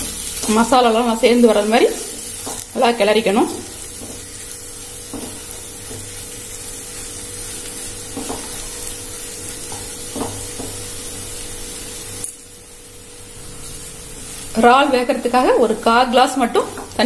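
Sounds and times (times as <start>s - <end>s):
food sizzling in a pan: 0.0s - 17.0s.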